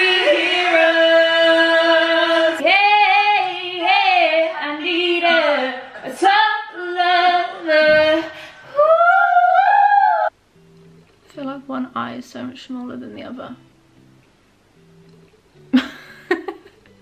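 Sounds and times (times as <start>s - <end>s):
women singing unaccompanied: 0.0s - 10.3s.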